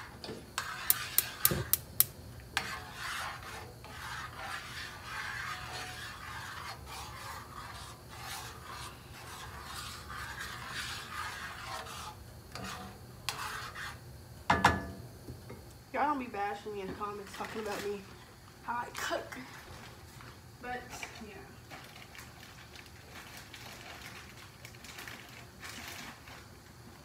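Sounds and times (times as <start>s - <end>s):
spoon scraping pan: 0.0s - 1.8s, 2.6s - 14.7s, 16.8s - 22.0s
knock on pan: 14.5s - 15.0s.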